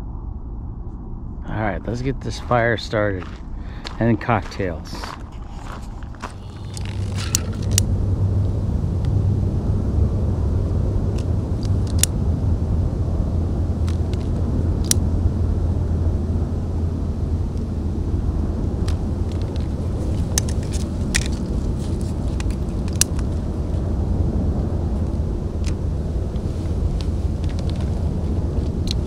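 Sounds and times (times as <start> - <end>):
low rumble: 0.0 - 29.0
campfire clicks and snaps: 6.6 - 7.9, 11.2 - 12.2, 18.8 - 23.8, 25.0 - 29.0.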